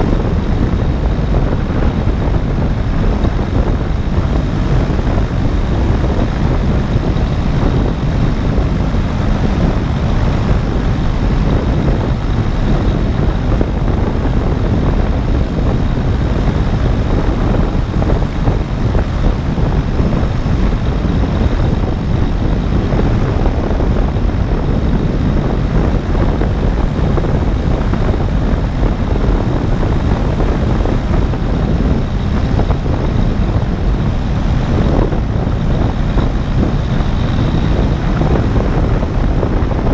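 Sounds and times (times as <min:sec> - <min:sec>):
engine and propeller drone: 0:00.0 - 0:39.9
wind rushing across microphone: 0:00.0 - 0:39.9.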